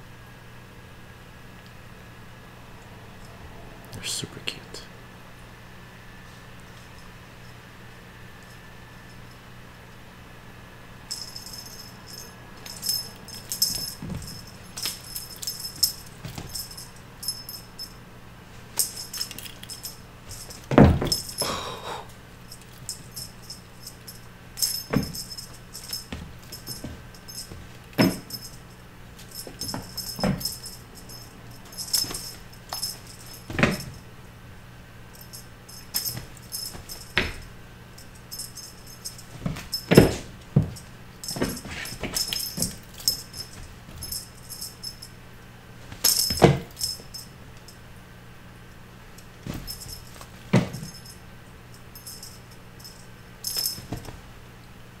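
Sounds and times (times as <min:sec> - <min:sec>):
steady low hum: 0:00.0 - 0:55.0
kittens pouncing thumps: 0:11.1 - 0:17.6, 0:18.8 - 0:21.5, 0:24.6 - 0:28.6, 0:29.2 - 0:34.0, 0:35.2 - 0:37.5, 0:38.3 - 0:44.7, 0:45.9 - 0:47.2, 0:49.4 - 0:51.1, 0:53.5 - 0:54.2
toy jingling: 0:11.1 - 0:18.0, 0:18.8 - 0:21.5, 0:22.4 - 0:34.0, 0:35.2 - 0:45.1, 0:46.0 - 0:47.3, 0:49.5 - 0:51.2, 0:52.0 - 0:54.1.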